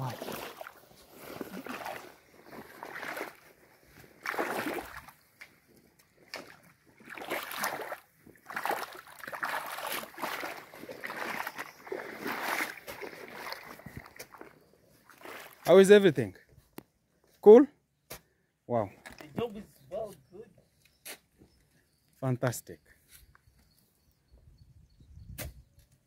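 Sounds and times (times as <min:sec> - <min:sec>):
boots wading through muddy water: 0:00.0 - 0:15.9.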